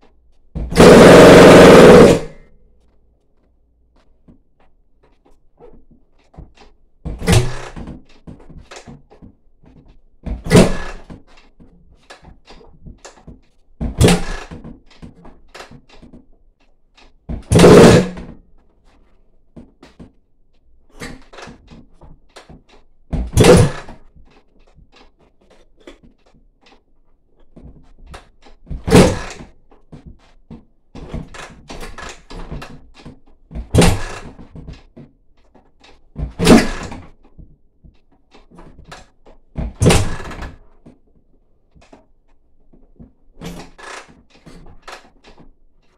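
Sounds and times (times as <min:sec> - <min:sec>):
dirt bike kick-start attempts: 0:00.6 - 0:02.5, 0:06.3 - 0:09.0, 0:10.3 - 0:18.4, 0:21.0 - 0:26.8, 0:28.2 - 0:29.5, 0:31.0 - 0:37.2, 0:38.3 - 0:40.7.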